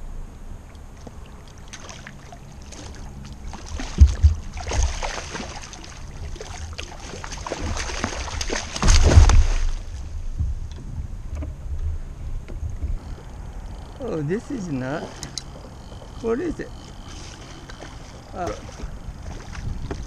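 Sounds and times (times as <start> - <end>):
shark thrashing and splashing: 1.6 - 10.0.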